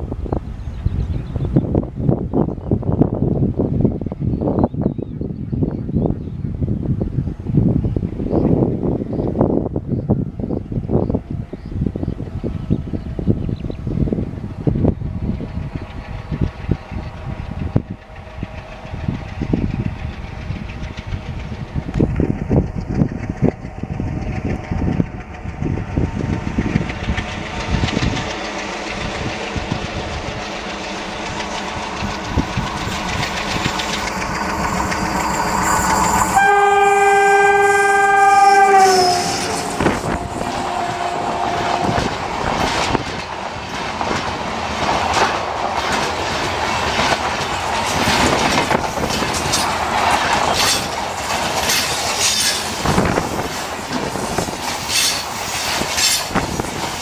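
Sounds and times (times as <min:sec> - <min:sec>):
diesel locomotive engine rumbling: 0:00.0 - 0:57.0
train wheels clickety-clack: 0:14.6 - 0:36.4, 0:38.9 - 0:57.0
train horn: 0:35.2 - 0:42.3.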